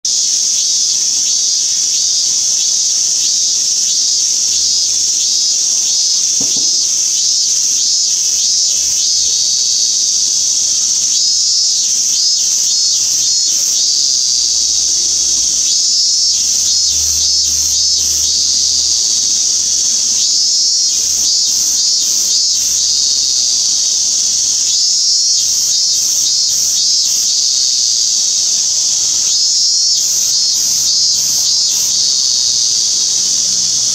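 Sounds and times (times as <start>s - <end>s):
cicada drone: 0.0s - 33.9s.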